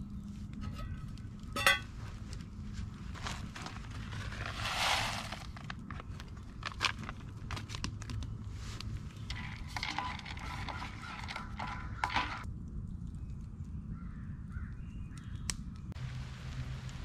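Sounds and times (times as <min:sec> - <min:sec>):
spoon scraping metal mug: 0:09.2 - 0:12.4.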